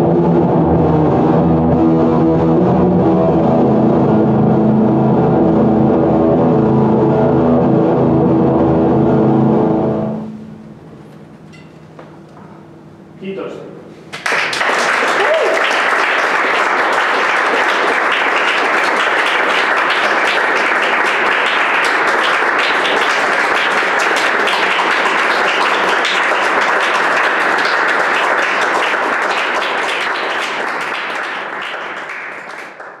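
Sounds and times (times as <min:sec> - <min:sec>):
audience applauding: 0:14.1 - 0:33.0.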